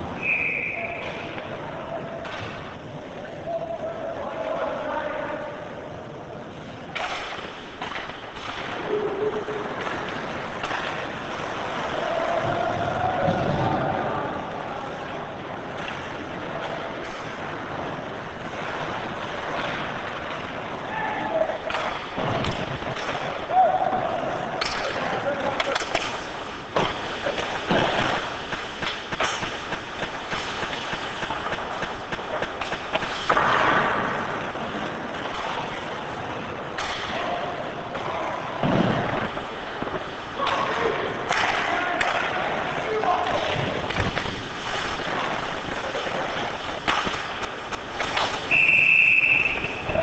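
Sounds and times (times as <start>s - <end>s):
hockey sticks and puck clacking: 0.0s - 3.3s, 6.6s - 14.0s, 14.6s - 50.0s
referee's whistle long blast: 0.2s - 1.1s, 48.5s - 50.0s
skate blades scraping ice: 6.6s - 50.0s.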